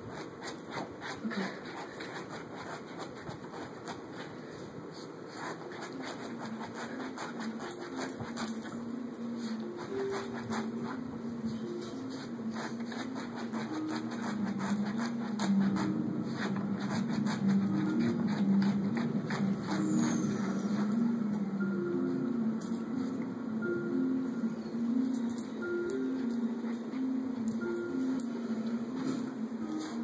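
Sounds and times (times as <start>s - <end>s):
dog claws scratching upholstery: 0.1s - 4.3s, 5.3s - 11.0s, 11.8s - 21.1s
tune of stepping notes: 15.2s - 30.0s.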